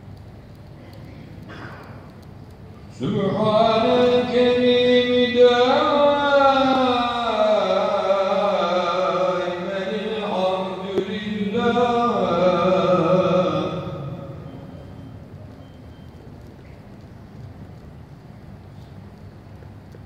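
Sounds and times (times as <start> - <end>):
man chanting a prayer: 2.9 - 14.4.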